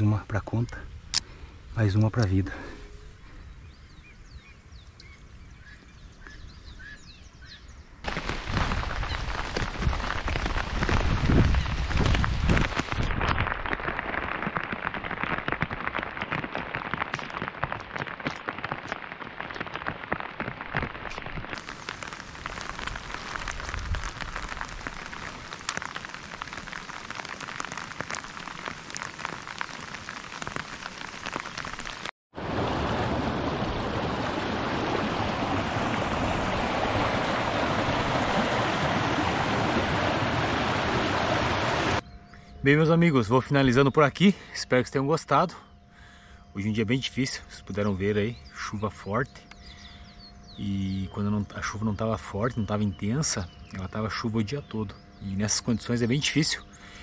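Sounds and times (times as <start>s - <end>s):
heavy rain on a pond: 8.0s - 42.0s
floodwater rushing down a channel: 8.1s - 42.0s.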